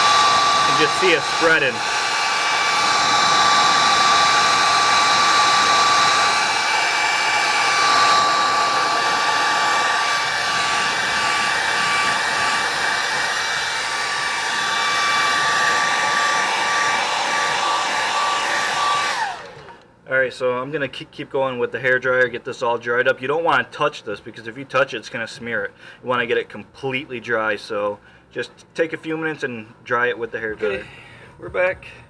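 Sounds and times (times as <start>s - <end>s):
hair dryer blowing air: 0.0s - 19.9s
hair dryer whine: 0.0s - 19.9s.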